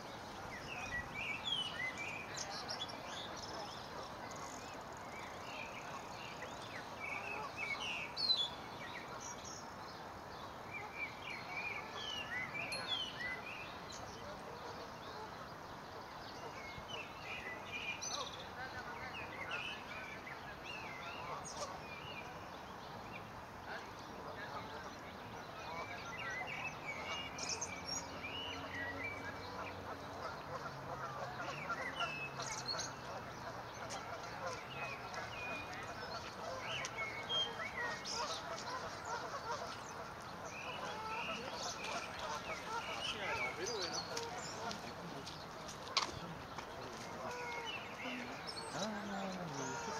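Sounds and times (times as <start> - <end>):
cygnets peeping: 33.8 - 49.9.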